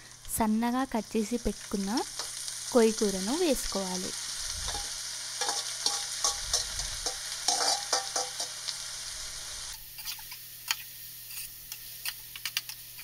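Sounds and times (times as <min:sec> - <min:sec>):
hot oil sizzling: 0:00.0 - 0:13.0
metal spoon scraping pot: 0:04.7 - 0:08.5.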